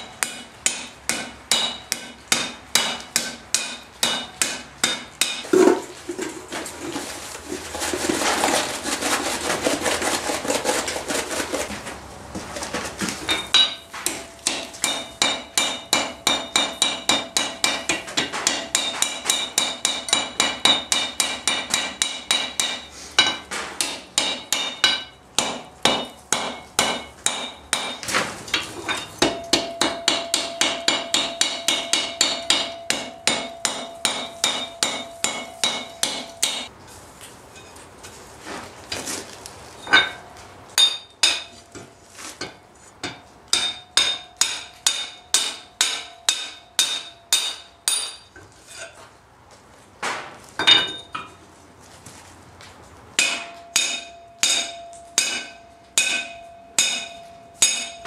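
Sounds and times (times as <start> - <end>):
anvil ringing: 0.0 - 5.4, 13.3 - 28.1, 28.9 - 36.7, 43.0 - 48.3, 53.2 - 58.0
hammer striking hot iron: 0.0 - 5.8, 13.3 - 36.7, 40.8 - 48.4, 53.2 - 58.0.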